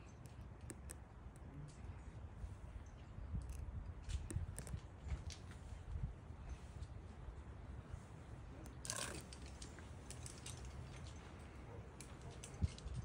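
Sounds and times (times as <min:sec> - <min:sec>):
climbing gear clicking and rattling: 0:08.7 - 0:13.0.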